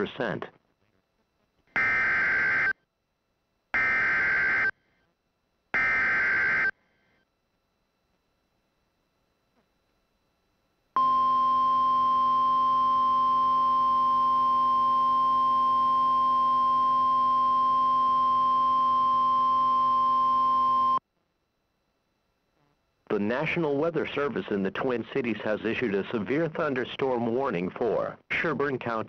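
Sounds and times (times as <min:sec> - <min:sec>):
high-pitched alarm tone: 0:01.8 - 0:02.7, 0:03.8 - 0:04.7, 0:05.8 - 0:06.7.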